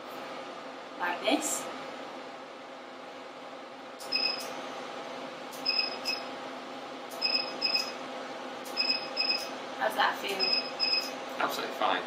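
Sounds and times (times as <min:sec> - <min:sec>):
steady hum: 0:00.0 - 0:12.0
short high beeps with clicks: 0:04.0 - 0:04.5, 0:05.6 - 0:06.2, 0:07.2 - 0:08.0, 0:08.7 - 0:09.5, 0:10.4 - 0:11.2.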